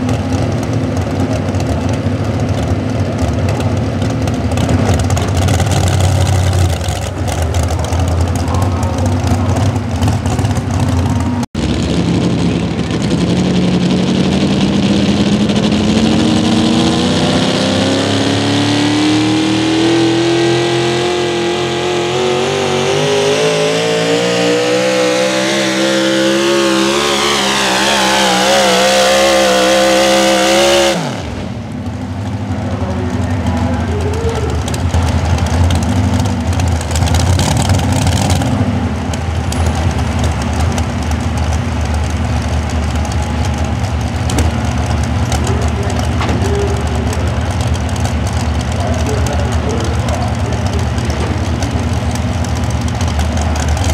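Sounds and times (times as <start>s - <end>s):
low engine rumble: 0.0s - 28.8s, 31.0s - 53.9s
engine revving hard: 11.5s - 31.6s.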